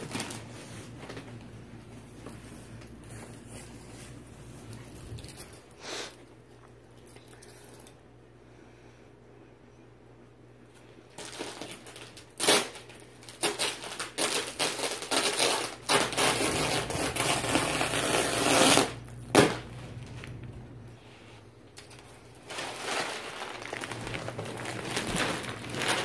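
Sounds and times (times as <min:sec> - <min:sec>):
plastic crinkling and ripping: 0:00.0 - 0:01.4, 0:11.1 - 0:20.5, 0:21.7 - 0:26.0.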